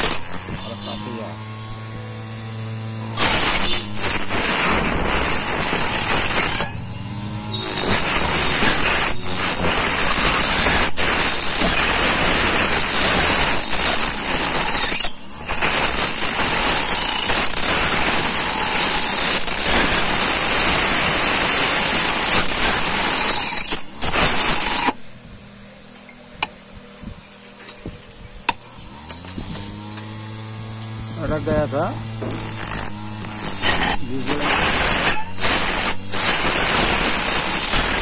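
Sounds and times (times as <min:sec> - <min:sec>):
key cutting machine grinding: 0:00.0 - 0:25.0, 0:28.5 - 0:38.0
man talking: 0:00.6 - 0:01.4, 0:31.2 - 0:32.0, 0:34.1 - 0:34.6.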